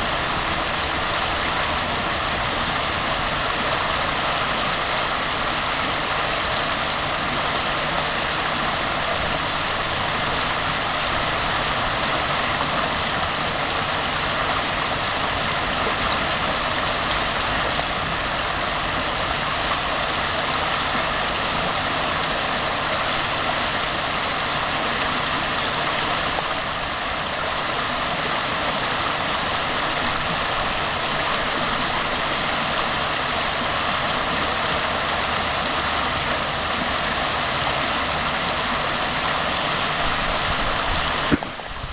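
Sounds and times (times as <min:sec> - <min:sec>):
stream rushing over rocks: 0:00.0 - 0:41.9.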